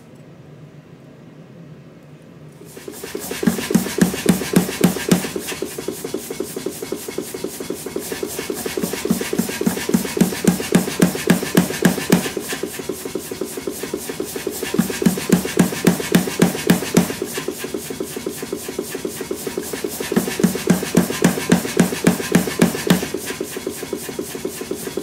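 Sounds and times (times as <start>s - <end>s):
hammer blows on hot steel: 2.8s - 12.9s, 14.6s - 17.6s.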